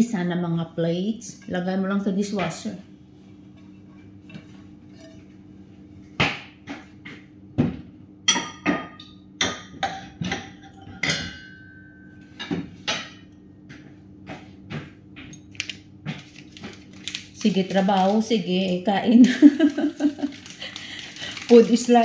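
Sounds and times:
dishes and glassware clinking: 8.3s - 13.3s.

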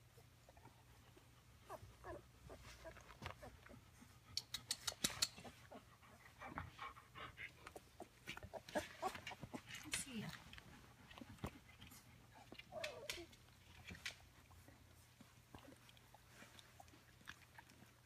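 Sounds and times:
puppies suckling: 0.0s - 18.0s.

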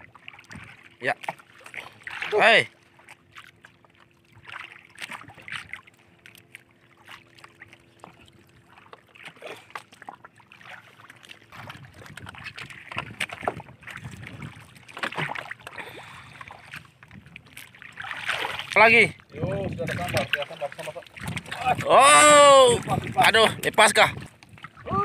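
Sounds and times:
water slapping against boat hull: 0.0s - 25.0s.

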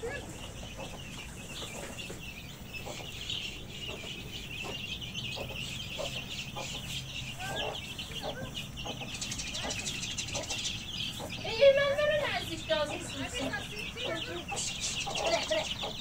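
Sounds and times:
chickens clucking: 0.0s - 16.0s
high-pitched chirping chorus: 0.0s - 16.0s.

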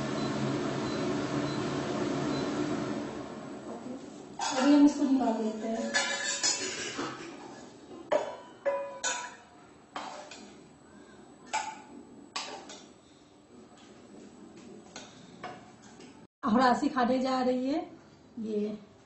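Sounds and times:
metal spoon clinking on steel bowl: 5.7s - 7.0s, 8.2s - 9.4s.

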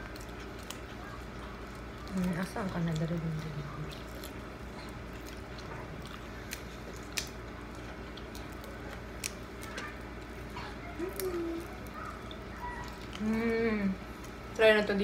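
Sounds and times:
shrimp shells cracking: 0.0s - 10.3s
wet squishing and chewing: 0.0s - 14.6s.

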